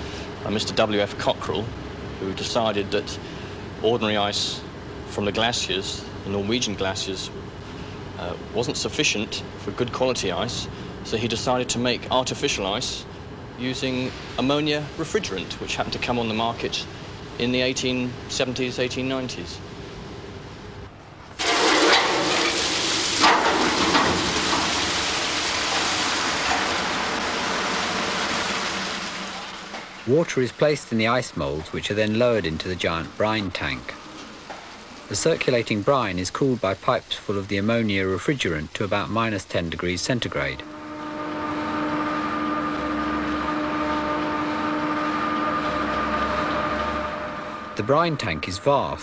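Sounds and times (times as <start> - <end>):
machinery droning: 0.0 - 36.4, 40.2 - 49.0
water gushing into moulds: 21.3 - 40.6.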